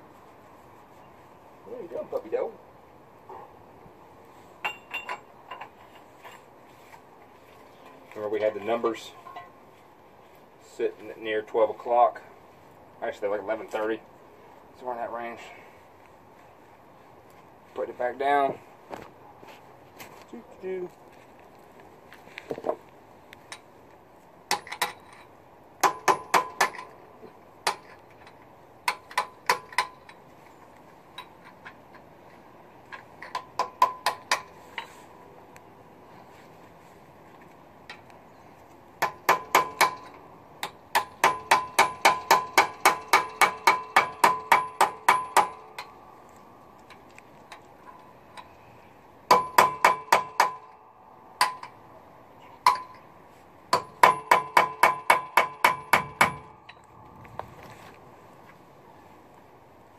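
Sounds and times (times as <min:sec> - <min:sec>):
hammer clinking on steel: 0:52.6 - 0:53.1.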